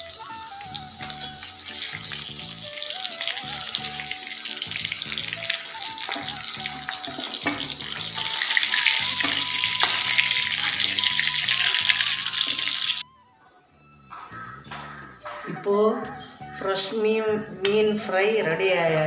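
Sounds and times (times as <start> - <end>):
fish sizzling in hot oil: 0.0 - 13.0
background music: 0.0 - 19.0.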